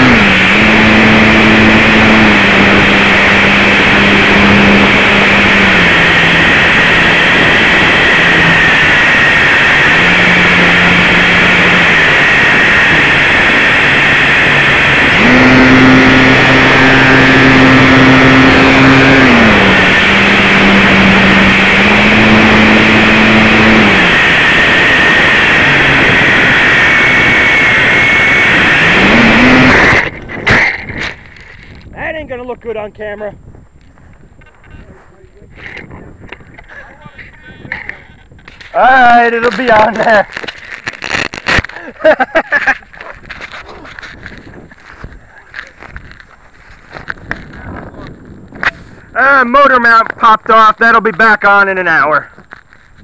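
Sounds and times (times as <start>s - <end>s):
model plane motor buzzing: 0.0s - 31.9s
plane crashing: 0.0s - 32.4s, 34.4s - 50.8s.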